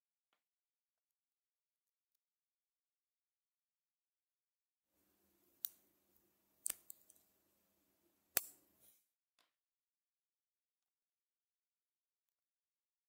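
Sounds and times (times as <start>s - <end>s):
fingers rustling: 5.4s - 7.5s
magnet balls clicking: 6.6s - 7.3s, 8.3s - 8.9s.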